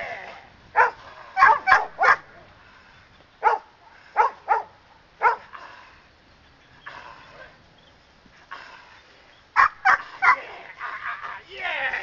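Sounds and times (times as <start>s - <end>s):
dog barking: 0.8s - 2.3s, 3.4s - 5.5s, 9.6s - 10.4s.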